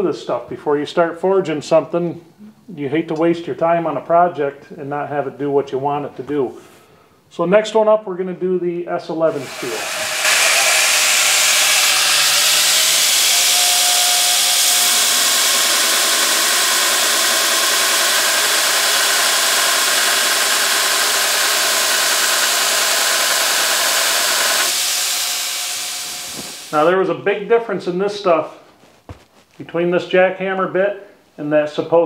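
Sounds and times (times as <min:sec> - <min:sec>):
grinder wheel grinding steel: 0:09.3 - 0:26.8.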